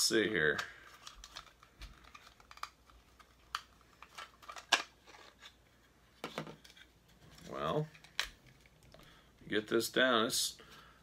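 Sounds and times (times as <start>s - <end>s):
plastic pieces clicking together: 0.5s - 5.4s.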